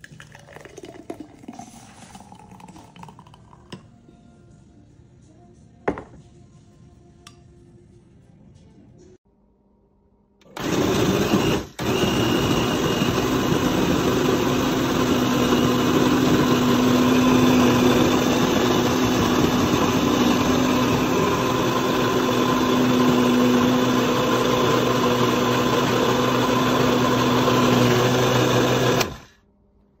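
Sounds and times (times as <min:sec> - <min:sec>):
blender motor whirring: 0:10.4 - 0:29.4.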